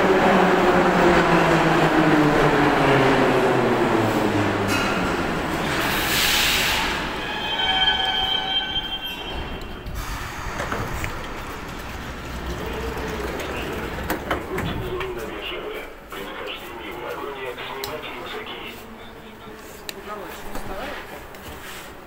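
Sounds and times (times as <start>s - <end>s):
metro train braking: 0.0s - 19.9s
low train rumble: 0.0s - 22.0s
brake squeal: 5.8s - 10.8s.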